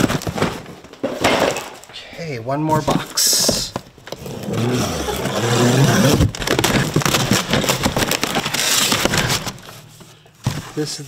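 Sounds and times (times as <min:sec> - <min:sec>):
cardboard tearing and rustling: 0:00.0 - 0:01.0, 0:04.0 - 0:09.9.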